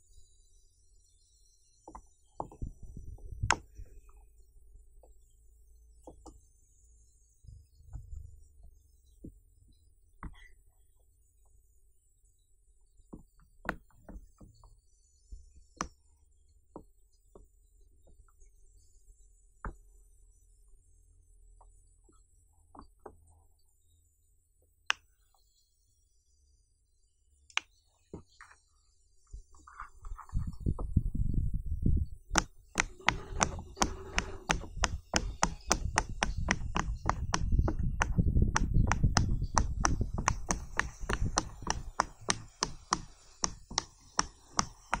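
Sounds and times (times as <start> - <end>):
fidget toy bubbles popping: 34.4 - 45.0.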